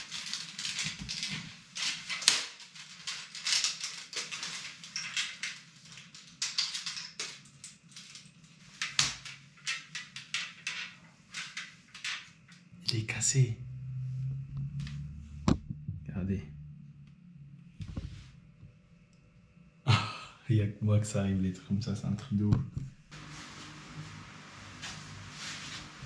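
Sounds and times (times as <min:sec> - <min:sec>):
low steady hum: 0:11.0 - 0:26.0.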